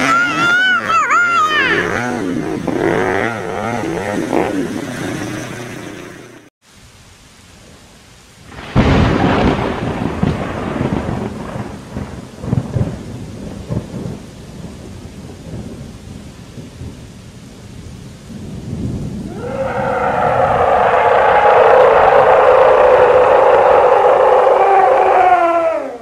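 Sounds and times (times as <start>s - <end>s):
steady rain: 6.6s - 26.0s
thunder rumbling: 8.5s - 26.0s.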